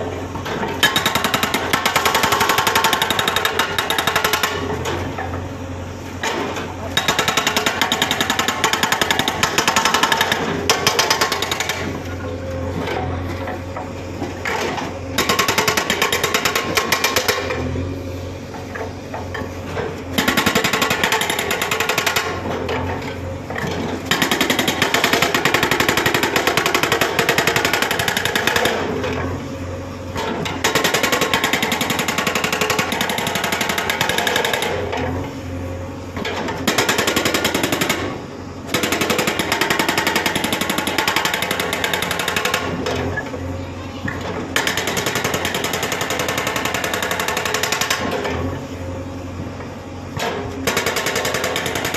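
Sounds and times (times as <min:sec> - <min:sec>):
hydraulic breaker hammering concrete: 0:00.3 - 0:05.4, 0:06.2 - 0:17.8, 0:18.5 - 0:29.3, 0:30.2 - 0:35.2, 0:36.2 - 0:43.2, 0:44.0 - 0:48.5, 0:50.2 - 0:51.9.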